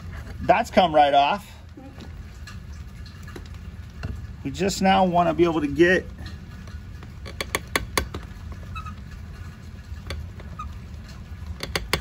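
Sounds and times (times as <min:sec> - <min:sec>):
faint valve creaks: 0:06.2 - 0:12.0.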